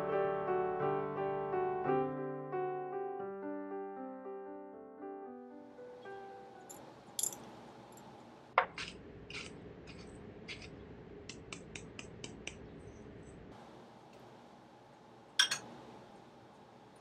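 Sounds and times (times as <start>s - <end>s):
metal clinking on dish: 6.7s - 7.5s, 15.4s - 15.7s.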